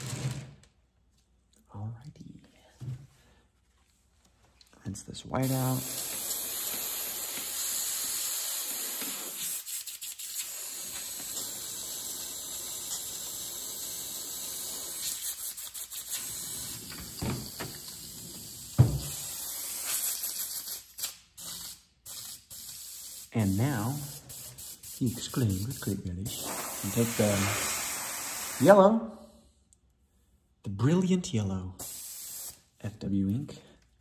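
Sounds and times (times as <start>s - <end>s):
spray gun hissing: 5.4s - 28.8s, 31.8s - 32.6s.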